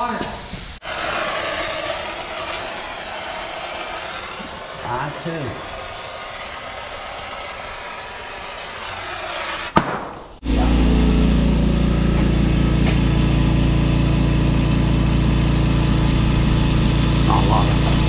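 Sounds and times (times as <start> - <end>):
air compressor running: 0.0 - 9.6, 10.4 - 18.0
steady hiss: 0.0 - 18.0.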